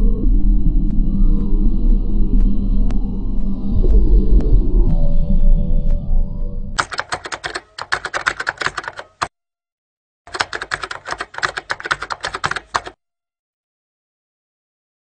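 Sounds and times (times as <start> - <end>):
rapid keyboard key clicks: 6.8 - 9.3, 10.3 - 13.0.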